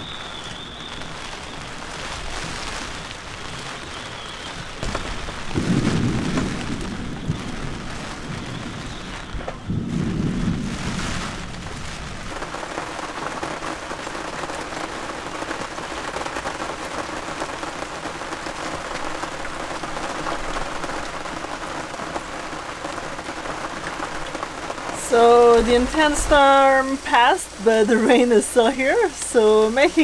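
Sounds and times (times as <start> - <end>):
rain on a boat and water: 0.0 - 30.0
thunder rumble: 4.8 - 13.9, 24.7 - 29.0.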